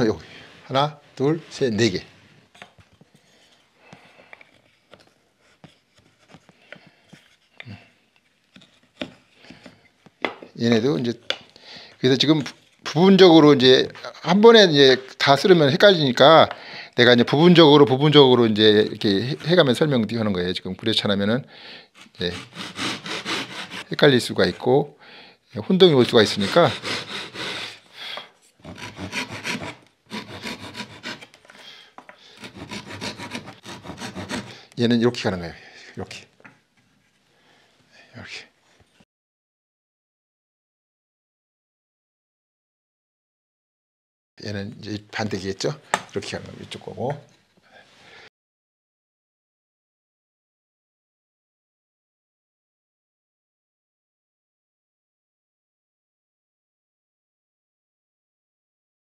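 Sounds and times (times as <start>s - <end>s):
hand saw cutting wood: 22.0s - 24.0s, 26.0s - 27.9s, 28.6s - 31.6s, 32.3s - 34.8s.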